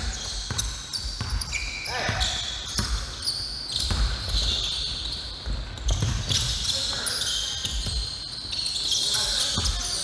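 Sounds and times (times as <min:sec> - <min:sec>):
sneakers squeaking: 0:00.0 - 0:10.0
basketball bouncing on hardwood: 0:03.8 - 0:04.6, 0:05.4 - 0:06.5.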